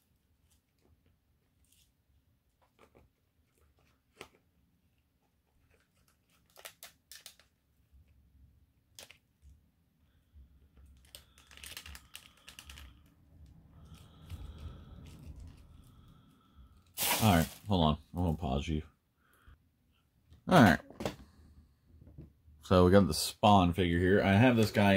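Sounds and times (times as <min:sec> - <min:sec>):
plastic packaging crinkling: 0:05.7 - 0:07.5, 0:11.0 - 0:13.1, 0:17.0 - 0:17.7.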